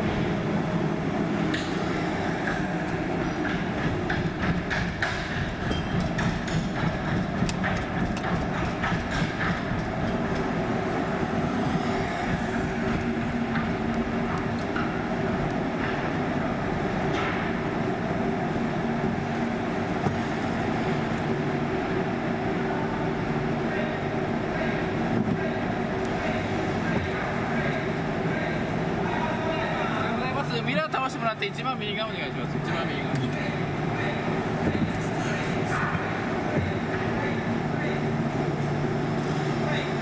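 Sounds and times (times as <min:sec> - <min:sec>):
irregular clicks and clatters: 0:02.4 - 0:10.5.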